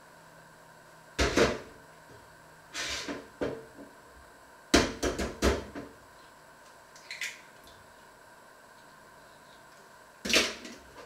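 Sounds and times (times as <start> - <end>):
kitchen knocks and bangs: 1.2 - 1.7.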